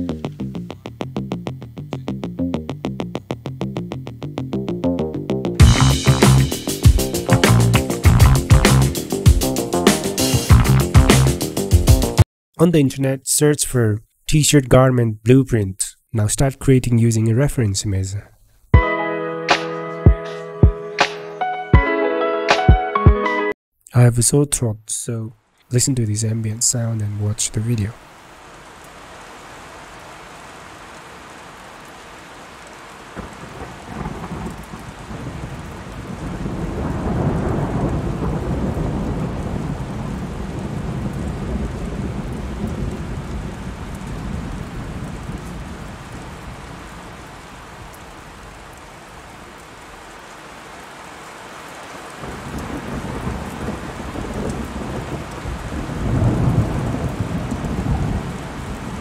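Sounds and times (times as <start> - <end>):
steady rain hiss: 5.6 - 12.2, 24.0 - 59.0
rolling thunder: 33.2 - 46.9, 52.2 - 59.0.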